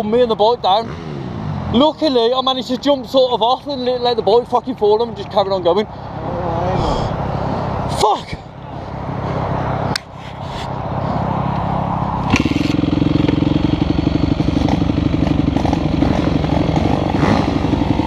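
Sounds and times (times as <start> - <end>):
motorcycle engine idling: 7.2 - 18.0.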